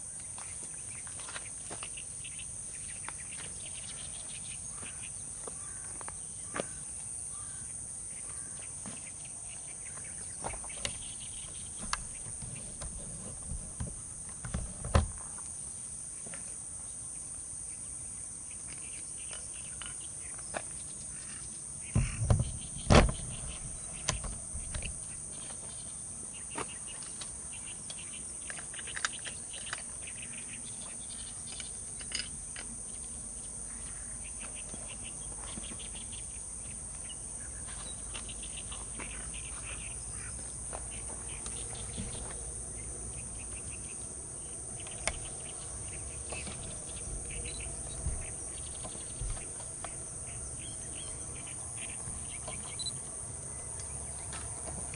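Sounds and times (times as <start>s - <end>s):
high-pitched insect chorus: 0.0s - 54.9s
low thumps: 11.5s - 15.3s, 21.9s - 25.3s
faint bird chirps: 33.6s - 54.3s.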